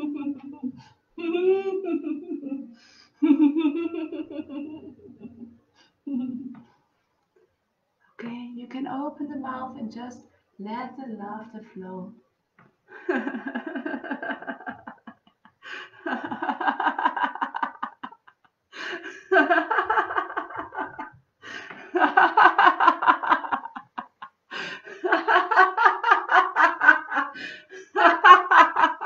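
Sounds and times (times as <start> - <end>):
woman laughing aloud: 13.0 - 29.0.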